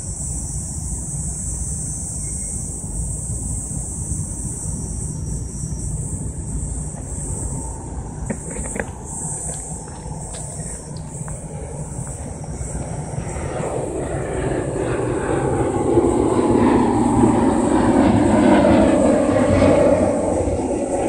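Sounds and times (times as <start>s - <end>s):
low rumbling drone: 6.1s - 21.0s.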